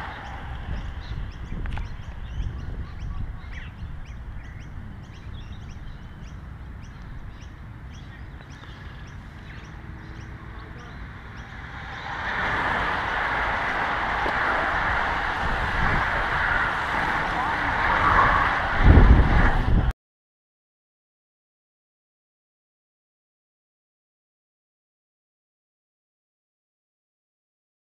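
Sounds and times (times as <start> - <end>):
low rumble: 0.0 - 7.4, 9.5 - 19.9
small birds chirping: 0.0 - 13.4
bicycles passing at speed: 0.0 - 19.9.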